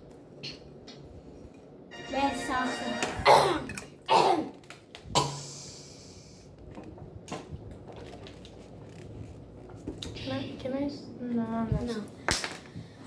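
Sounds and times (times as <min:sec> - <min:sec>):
breathy hiss: 0:05.2 - 0:06.6.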